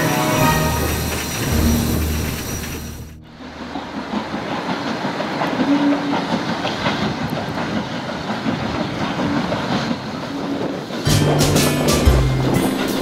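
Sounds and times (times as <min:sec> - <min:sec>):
music: 0:00.0 - 0:03.3, 0:11.1 - 0:13.0
steam locomotive rumbling: 0:00.0 - 0:13.0
wheels clattering on rails: 0:00.0 - 0:13.0.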